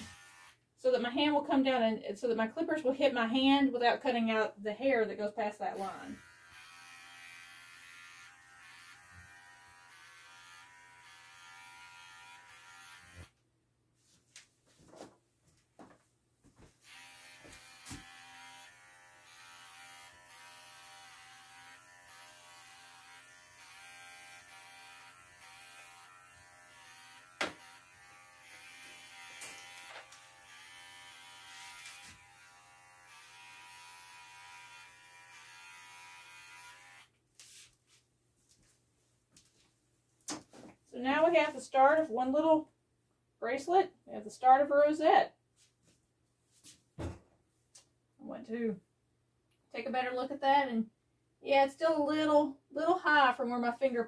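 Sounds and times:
pet clippers buzzing: 0.0 - 0.6, 5.8 - 13.4, 16.8 - 37.1.

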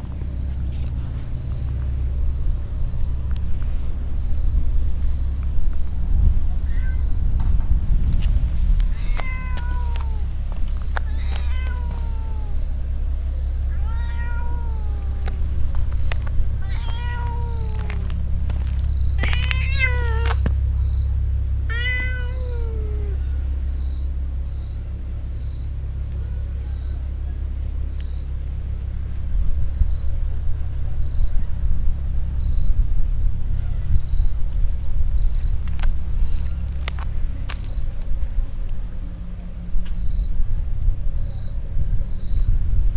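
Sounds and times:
low rumble: 0.0 - 42.9
insect chirping: 0.3 - 7.4, 8.2 - 28.4, 31.1 - 33.2, 35.0 - 36.8, 39.4 - 42.7
cat meowing: 6.5 - 7.3, 8.8 - 12.8, 13.6 - 15.6, 16.4 - 18.2, 19.2 - 20.5, 21.7 - 23.3.

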